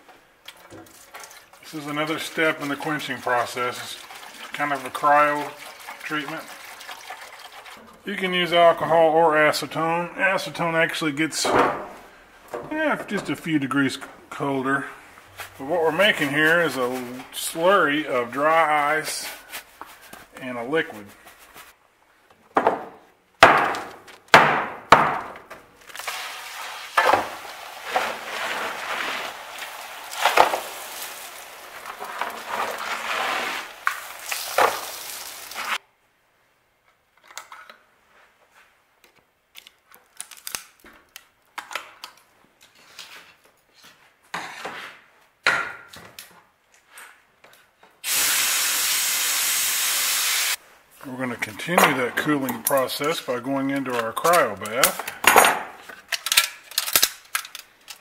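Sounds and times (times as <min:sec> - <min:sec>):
fizzing hiss: 0:33.5 - 0:35.8, 0:48.0 - 0:50.6
steady hiss: 0:48.0 - 0:50.6.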